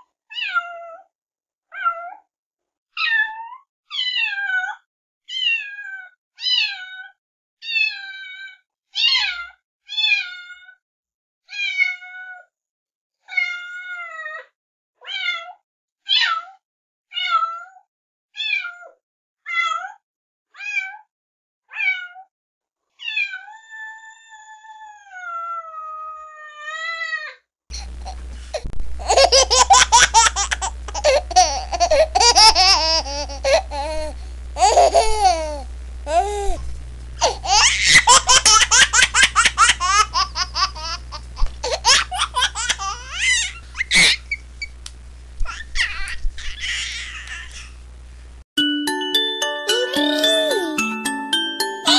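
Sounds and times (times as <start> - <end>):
cat meowing: 21.7 - 22.3
low hum: 27.7 - 45.5
loud laughter: 29.0 - 33.7, 37.2 - 43.0.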